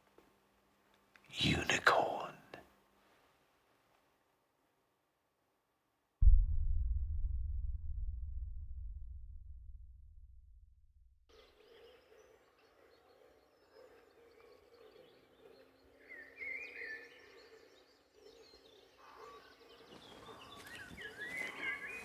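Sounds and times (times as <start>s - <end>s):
birds chirping: 11.4s - 22.0s.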